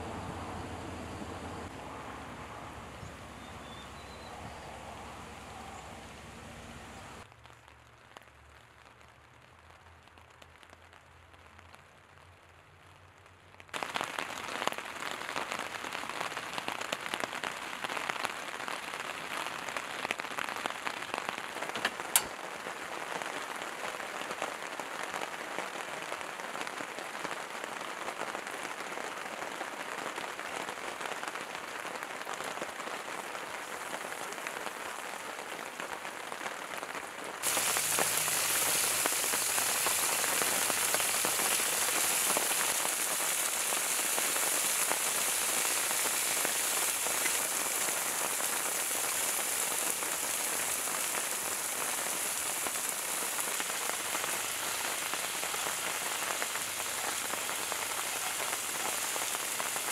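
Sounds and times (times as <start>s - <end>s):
sharp click: 21.8s - 22.4s
oil sizzling in a skillet: 37.4s - 59.9s.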